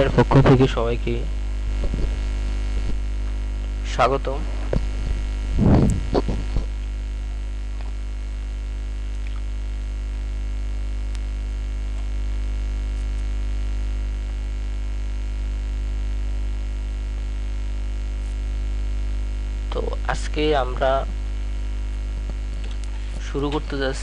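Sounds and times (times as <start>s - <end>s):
electrical mains hum: 0.0s - 24.0s.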